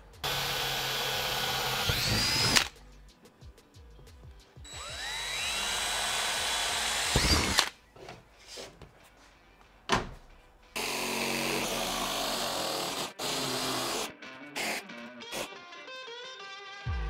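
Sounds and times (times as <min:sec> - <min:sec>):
cordless drill whining: 0:00.2 - 0:02.7, 0:04.7 - 0:07.7.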